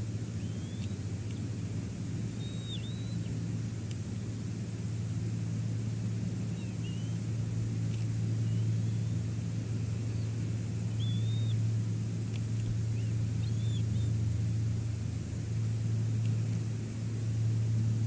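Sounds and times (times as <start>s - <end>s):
wind and sea rumble: 0.0s - 18.0s
faint high chirps: 0.4s - 1.0s, 2.4s - 3.3s, 6.5s - 7.2s, 10.9s - 11.6s, 13.0s - 14.1s.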